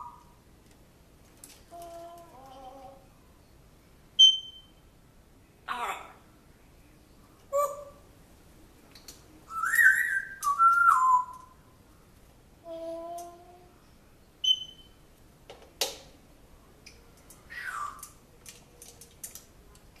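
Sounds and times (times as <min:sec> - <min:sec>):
parrot whistling: 0:09.5 - 0:11.5, 0:17.5 - 0:18.0.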